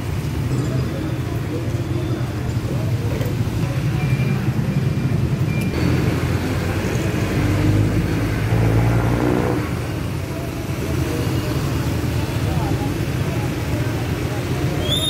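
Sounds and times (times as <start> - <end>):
traffic on wet road: 0.0 - 15.0
engine passing close: 5.8 - 10.2.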